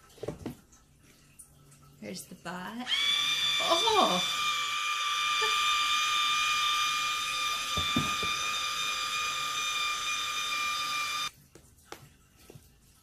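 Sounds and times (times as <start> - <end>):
electric motor whining: 2.9 - 11.3.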